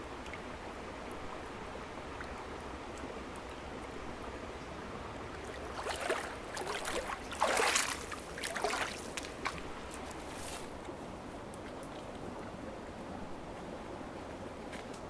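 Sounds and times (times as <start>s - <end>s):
flowing water: 0.0s - 15.0s
splashing steps in water: 5.5s - 10.2s.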